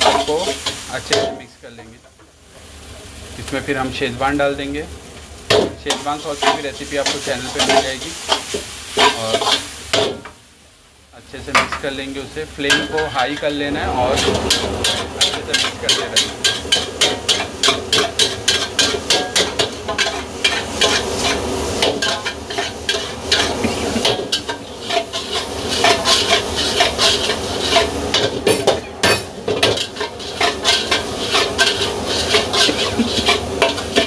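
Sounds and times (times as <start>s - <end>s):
food sizzling: 0.0s - 34.0s
spatula scraping a wok: 5.9s - 10.2s, 12.6s - 34.0s.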